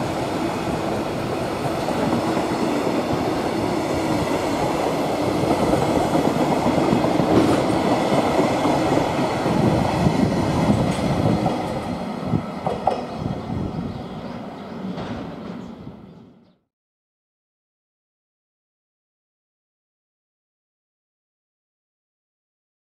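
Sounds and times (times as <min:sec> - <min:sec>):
freight train rolling on rails: 0:00.0 - 0:16.4.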